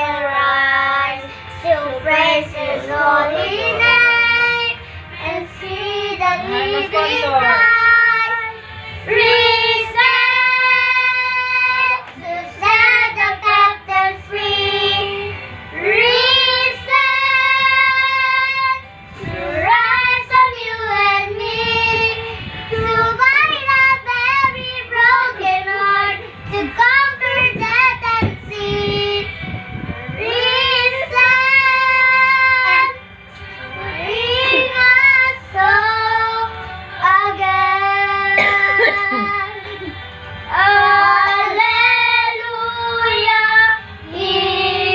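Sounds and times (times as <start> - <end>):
children singing: 1.7 - 18.8, 33.9 - 44.9.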